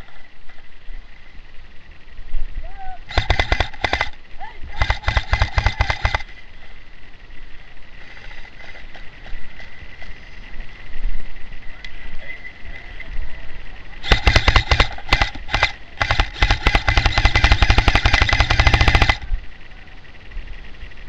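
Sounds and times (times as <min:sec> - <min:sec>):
airsoft gun firing bursts: 0:03.1 - 0:06.4, 0:14.0 - 0:19.4.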